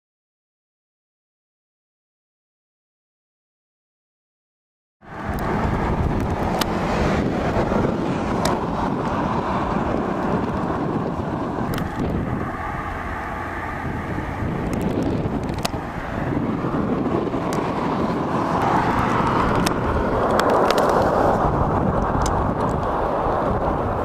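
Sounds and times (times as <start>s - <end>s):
wind buffeting microphone: 5.0s - 24.0s.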